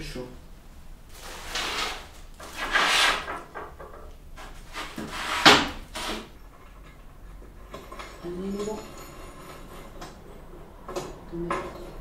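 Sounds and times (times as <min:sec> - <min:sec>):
rough scraping rustle: 0:01.1 - 0:03.5.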